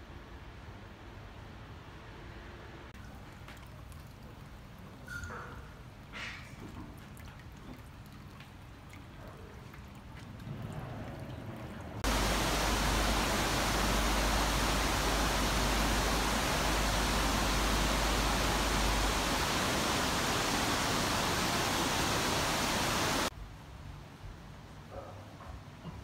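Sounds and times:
water trickling into stone basin: 3.0s - 5.4s, 6.4s - 23.3s
river white water rushing: 12.0s - 23.3s.

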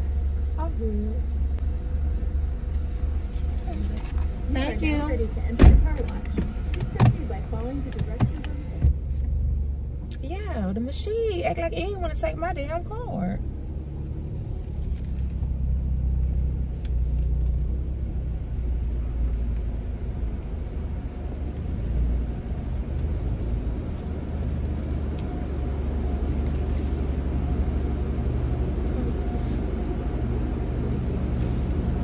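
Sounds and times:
car engine rumble from inside: 0.0s - 32.0s.

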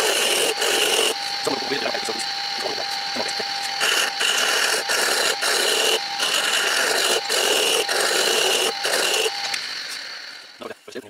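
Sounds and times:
chisel scraping spinning wood: 0.0s - 1.6s, 3.8s - 10.5s
lathe motor whine: 0.0s - 11.0s.

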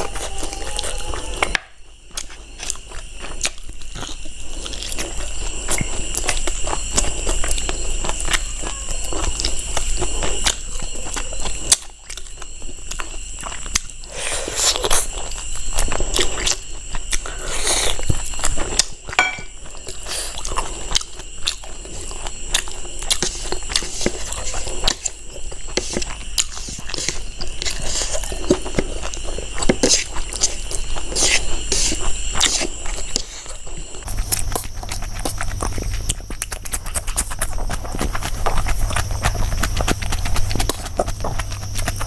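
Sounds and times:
person chewing and biting meat: 34.0s - 42.0s
slurping: 34.1s - 42.0s
wet mouth clicks: 34.1s - 42.0s.

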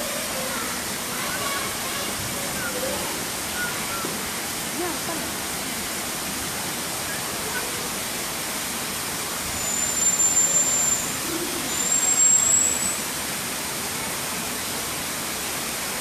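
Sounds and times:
marmoset high whistles: 9.6s - 11.1s, 11.7s - 13.0s.

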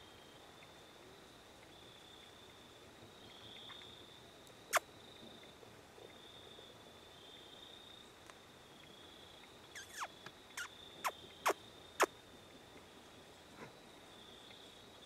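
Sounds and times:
small animal chirping: 9.7s - 11.6s.

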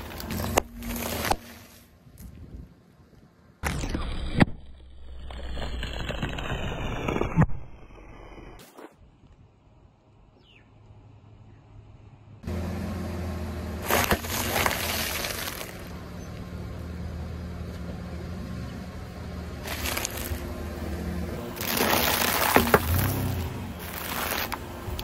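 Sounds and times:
car engine running: 0.0s - 1.9s, 12.3s - 25.0s
tyre crushing snack packets: 13.8s - 16.0s, 19.6s - 20.5s, 21.4s - 25.0s.

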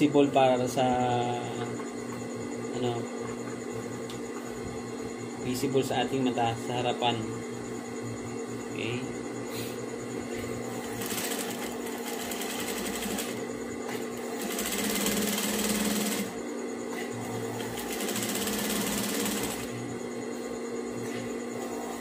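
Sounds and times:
steady hum: 0.0s - 22.0s
sewing machine stitching rapidly: 10.8s - 13.4s, 14.2s - 16.4s, 17.4s - 19.7s.

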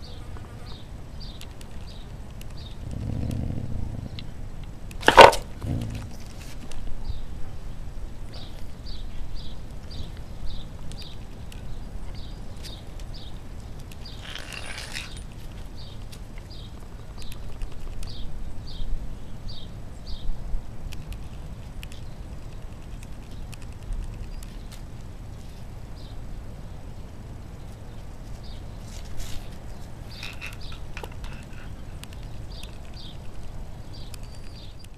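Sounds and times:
small bird chirping: 0.0s - 4.3s, 7.0s - 34.9s
steady low rumble: 0.9s - 17.5s.

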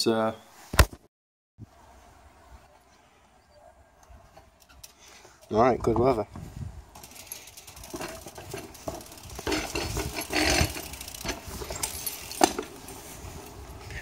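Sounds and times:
bike tyre rumble: 6.4s - 14.0s
bike rattling and clicking: 6.9s - 14.0s.

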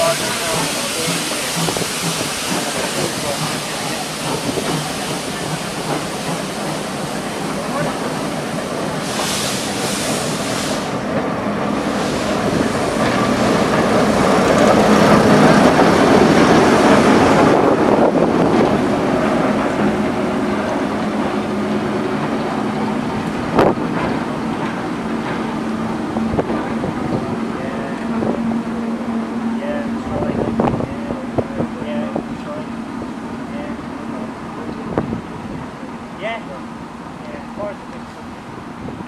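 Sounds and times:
locomotive engine hum: 0.0s - 39.0s
train coaches running on rails: 0.0s - 39.0s.

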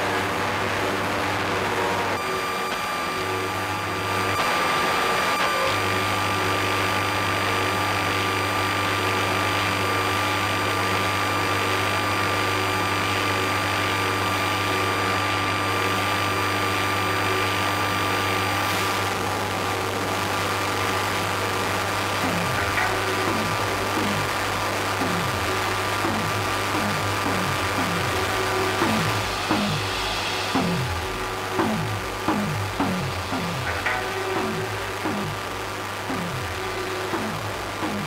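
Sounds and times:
synthesizer hiss: 13.0s - 38.0s
low synthesizer hum: 21.9s - 38.0s.

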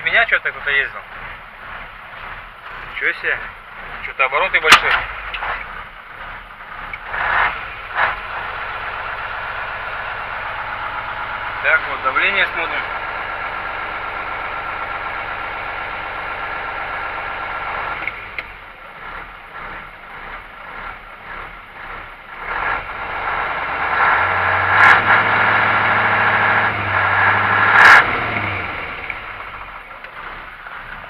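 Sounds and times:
diesel engine idling and revving: 0.0s - 31.0s.

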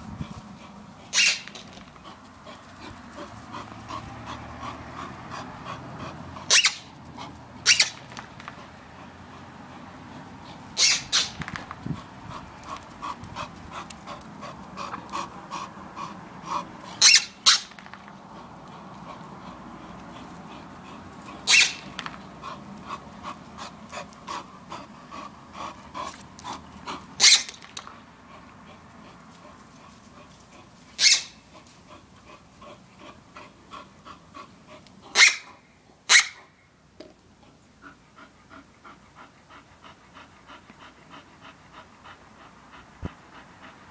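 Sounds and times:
dog panting fast: 0.0s - 35.6s, 37.4s - 43.9s
dog barking: 1.2s - 1.4s, 21.5s - 21.8s, 31.0s - 31.3s, 35.2s - 35.5s, 36.1s - 36.4s.

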